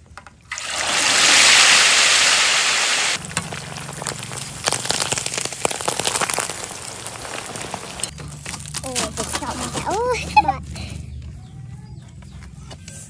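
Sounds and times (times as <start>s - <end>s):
oil popping: 0.0s - 10.0s
fish frying in hot oil: 0.5s - 8.1s.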